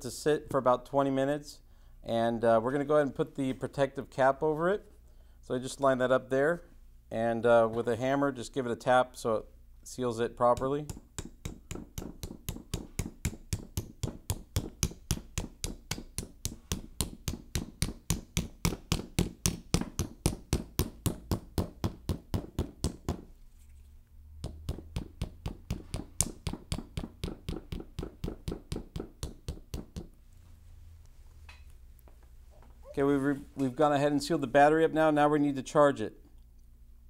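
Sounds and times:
hammer tapping rubber cap: 10.6 - 23.2, 24.4 - 30.2.

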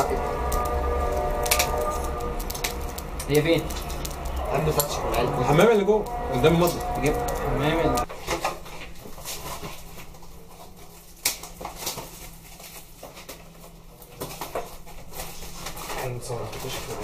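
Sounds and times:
low steady hum: 0.0 - 12.3.

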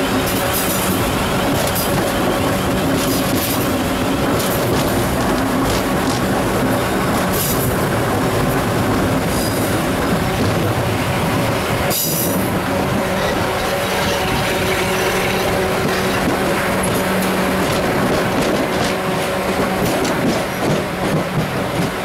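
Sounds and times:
train wheels rumbling on rails: 0.0 - 22.0
wheel squeals: 13.1 - 16.2.

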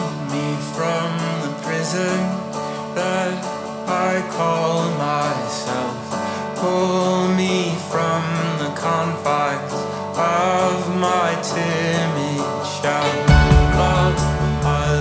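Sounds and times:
guitar: 0.0 - 15.0
song with sung melody: 0.0 - 15.0
steady bass line: 13.1 - 15.0.

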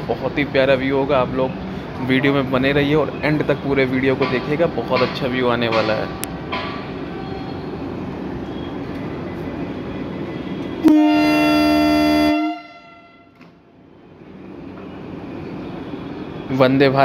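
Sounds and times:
train horn blast: 10.6 - 13.5.

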